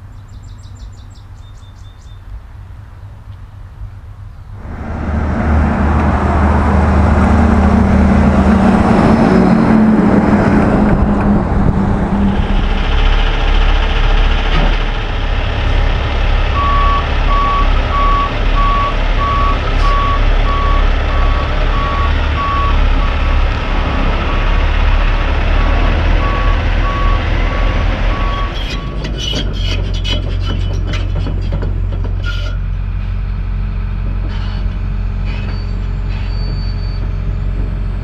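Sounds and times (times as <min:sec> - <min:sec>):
truck diesel engine droning: 0:03.7 - 0:38.0
reversing alarm beeping: 0:16.5 - 0:23.4, 0:26.2 - 0:29.0, 0:35.2 - 0:38.0.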